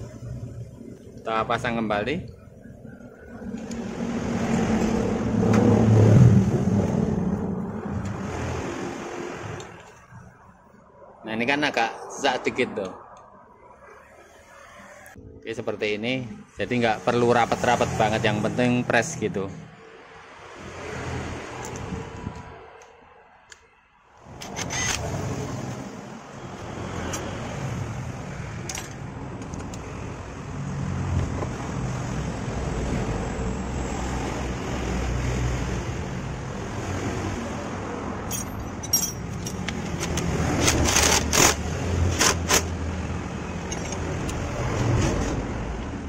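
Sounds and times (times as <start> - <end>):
metal clinks and taps: 38.3 - 39.9.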